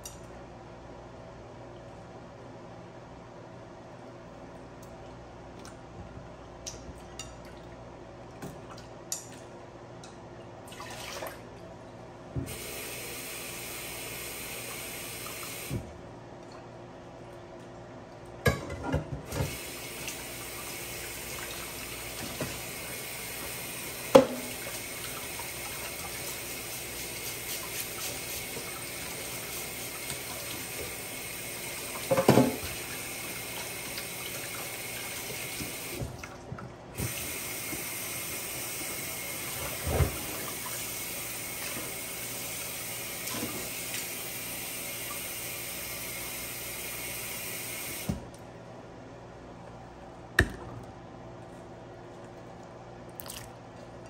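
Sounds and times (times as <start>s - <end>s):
water running from a tap: 12.5s - 15.8s, 19.3s - 36.1s, 37.0s - 48.2s.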